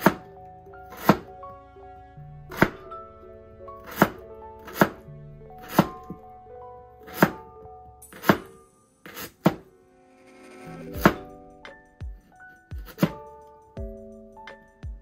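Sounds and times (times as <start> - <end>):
background music: 0.0 - 15.0
knife cutting on wooden board: 1.0 - 1.2, 2.5 - 2.8, 3.8 - 5.0, 5.6 - 6.2, 7.1 - 7.4, 9.1 - 9.6, 12.8 - 13.2.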